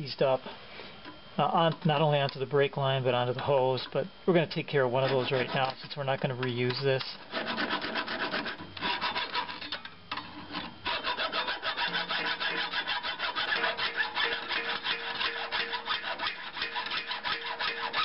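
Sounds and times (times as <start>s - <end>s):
hacksaw cutting metal: 5.0s - 5.8s, 7.3s - 9.8s, 10.5s - 18.0s.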